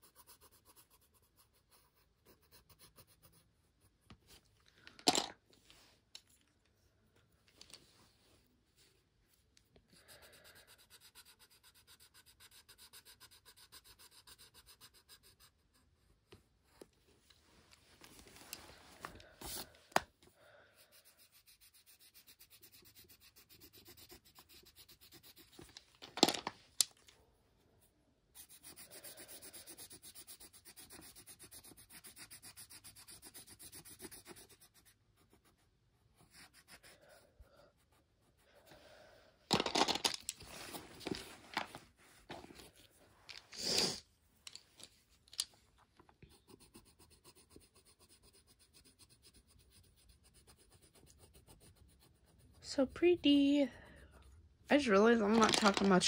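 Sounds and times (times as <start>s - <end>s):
coloured pencil scratching on paper: 0.0s - 4.5s, 9.3s - 16.8s, 19.2s - 19.8s, 20.5s - 25.9s, 27.8s - 39.0s, 46.2s - 56.0s
pencils clicking and rustling: 4.7s - 5.4s, 25.4s - 27.2s, 39.5s - 46.1s, 54.8s - 56.0s.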